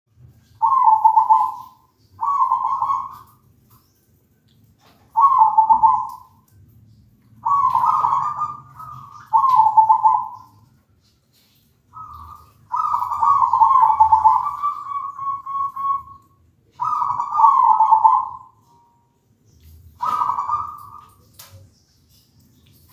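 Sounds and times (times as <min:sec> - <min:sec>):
dove cooing: 0:00.4 - 0:03.4, 0:04.9 - 0:06.4, 0:07.4 - 0:10.6, 0:11.9 - 0:18.9, 0:19.9 - 0:21.5.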